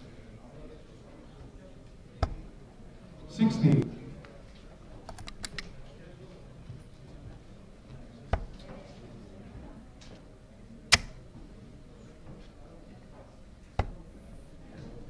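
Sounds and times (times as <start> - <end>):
low room murmur: 0.0 - 15.0
darts thudding into dartboard: 2.2 - 2.6, 8.3 - 8.8, 10.9 - 11.2, 13.7 - 14.1.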